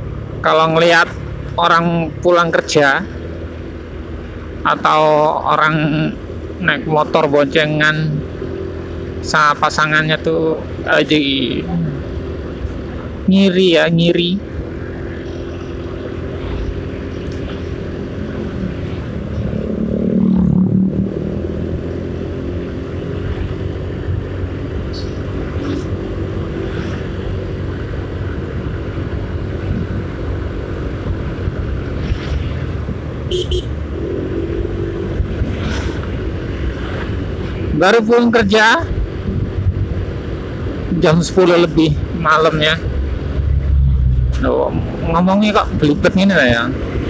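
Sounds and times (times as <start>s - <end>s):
road and wind noise: 0.0s - 47.0s
motorcycle engine running: 14.4s - 41.3s.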